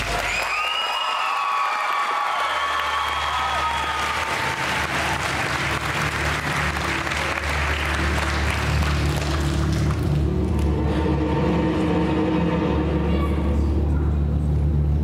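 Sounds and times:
audience applauding: 0.0s - 10.8s
sustained musical tones: 4.6s - 15.0s
steady low hum: 5.6s - 15.0s.

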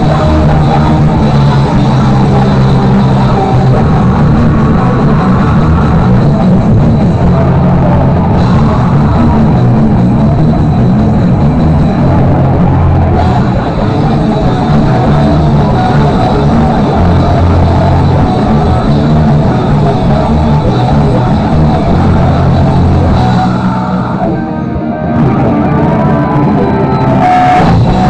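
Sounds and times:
rock band playing live: 0.0s - 28.0s.

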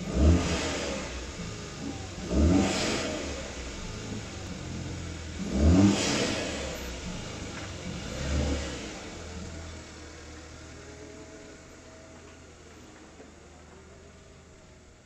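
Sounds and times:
car engine revving and idling: 0.0s - 15.0s.

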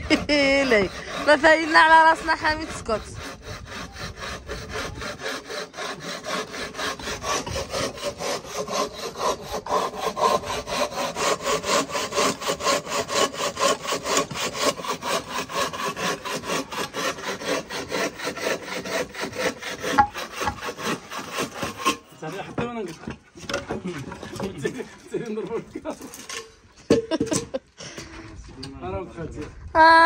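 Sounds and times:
bow saw cutting wood: 0.0s - 22.4s.

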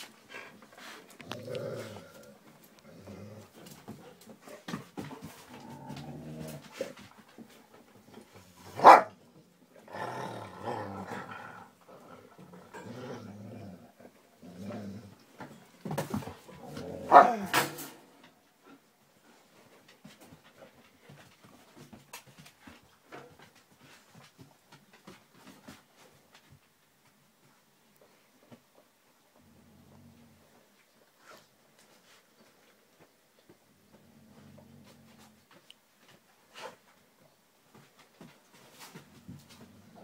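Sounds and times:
dogs growling: 0.3s - 7.1s, 8.2s - 17.9s, 29.4s - 30.6s, 33.8s - 35.4s
loud sharp dog barks: 8.8s - 9.2s, 17.1s - 17.6s.

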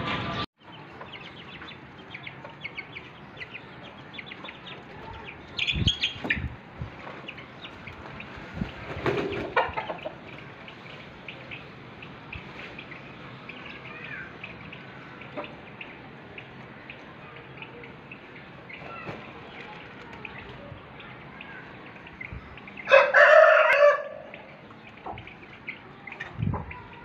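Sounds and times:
chicks peeping: 0.0s - 27.0s
rooster crowing: 22.9s - 24.3s.

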